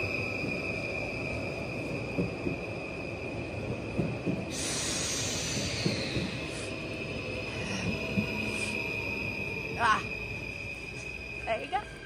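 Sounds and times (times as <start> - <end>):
train rolling rumble: 0.0 - 12.0
loud hiss: 4.5 - 6.7.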